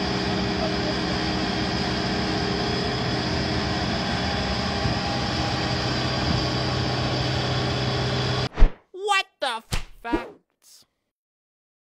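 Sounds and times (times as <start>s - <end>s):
machinery engine humming: 0.0s - 8.5s.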